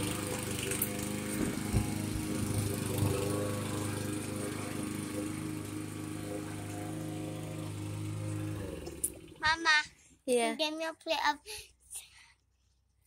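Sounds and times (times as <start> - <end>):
lawn mower engine running: 0.0 - 10.1.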